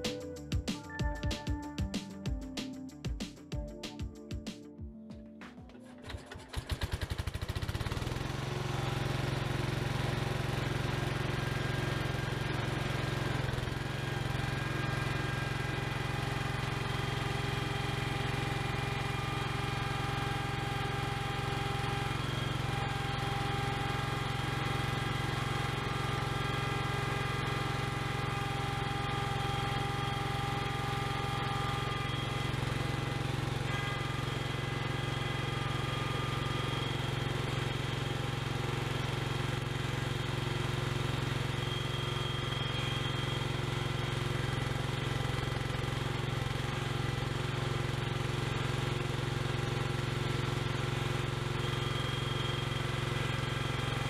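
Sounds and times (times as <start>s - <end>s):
forklift engine running: 5.9s - 54.0s.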